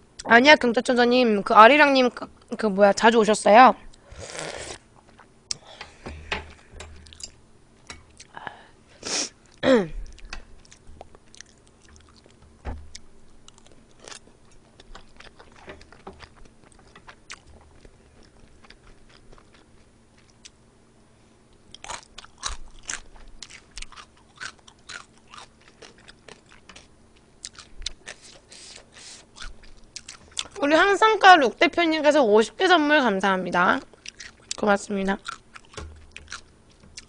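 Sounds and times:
chewing food: 0:07.0 - 0:07.4, 0:09.4 - 0:20.6, 0:21.5 - 0:30.6, 0:33.8 - 0:37.0.

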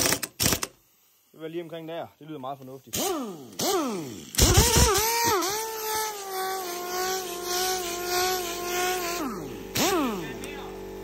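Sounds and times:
power drill motor whining: 0:03.0 - 0:10.6.

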